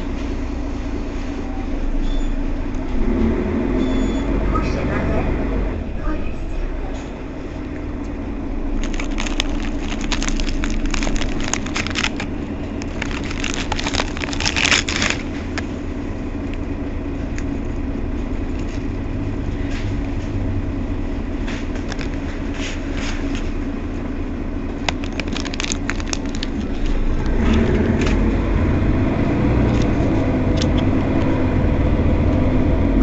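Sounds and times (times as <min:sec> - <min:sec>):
bus engine drone: 0:00.0 - 0:33.0
crackling rattles: 0:08.7 - 0:15.8, 0:21.3 - 0:23.6, 0:24.7 - 0:28.2.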